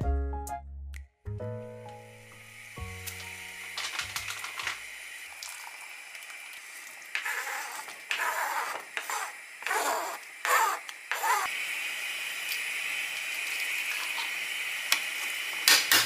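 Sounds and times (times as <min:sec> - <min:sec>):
water boiling in a saucepan: 0:03.4 - 0:16.0
spoon scraping cutting board: 0:07.2 - 0:11.4.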